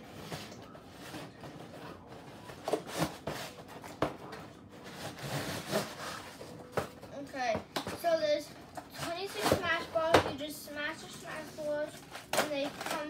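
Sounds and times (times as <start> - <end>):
cardboard scraping and rustling: 4.8 - 6.9.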